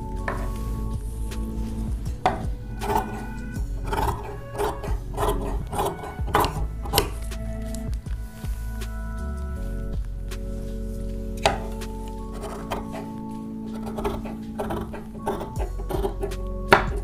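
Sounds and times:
blade rubbing along table: 1.4s - 7.2s, 11.5s - 16.4s.

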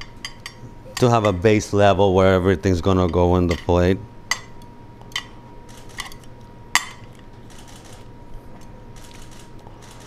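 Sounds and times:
tongs clinking on metal: 3.0s - 5.3s.

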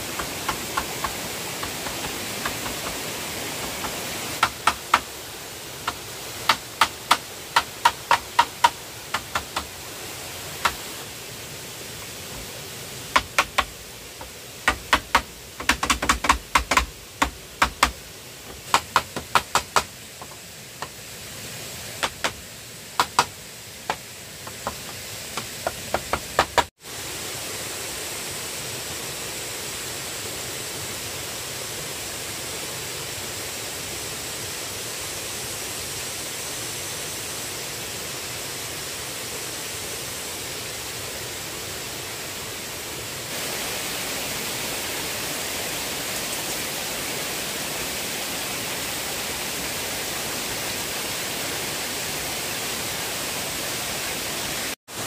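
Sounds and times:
steady rushing noise: 0.0s - 29.7s.

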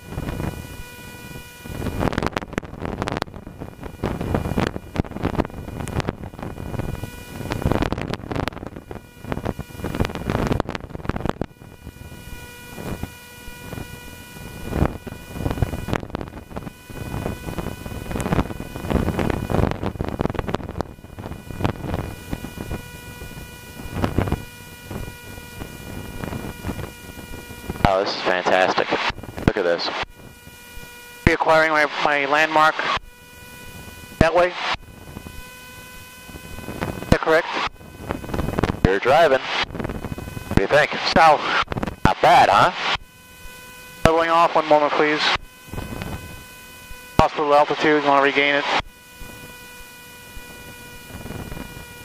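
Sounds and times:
wind buffeting the microphone: 0.0s - 27.9s, 29.1s - 29.5s, 34.8s - 38.9s, 39.6s - 40.6s, 41.6s - 42.1s, 45.4s - 47.1s, 49.1s - 52.0s
aircraft engine whine: 0.0s - 52.0s.

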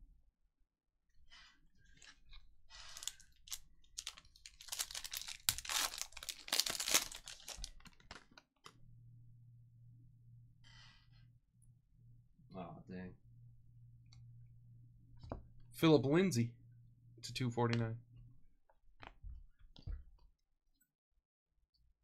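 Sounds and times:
wrappers tearing and crinkling: 2.8s - 8.4s
low steady hum: 7.0s - 18.5s.

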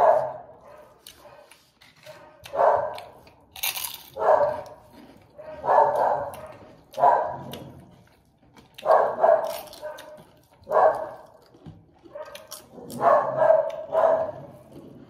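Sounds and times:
dog barking: 0.0s - 3.2s, 4.2s - 4.8s, 5.4s - 7.8s, 8.8s - 11.4s, 12.0s - 14.7s.

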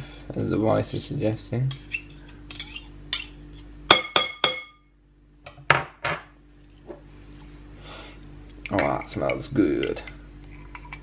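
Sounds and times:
knife scraping metal spoon: 1.7s - 3.7s.

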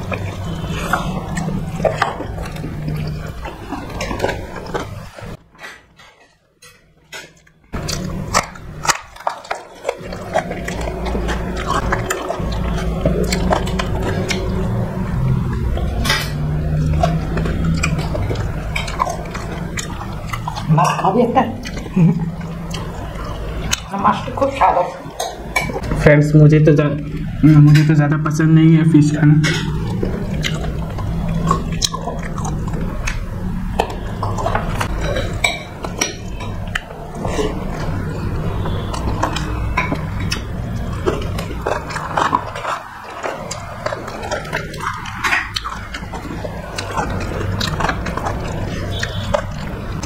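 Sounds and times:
chewing and mouth noises: 0.0s - 50.0s
steady low hum: 0.0s - 50.0s
dishes and cutlery clinking: 0.1s - 14.5s, 24.4s - 26.0s, 29.2s - 30.7s, 33.8s - 50.0s.

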